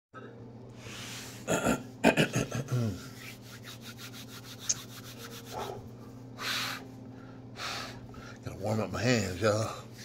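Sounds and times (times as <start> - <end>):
hands rubbing together: 3.0 - 6.6.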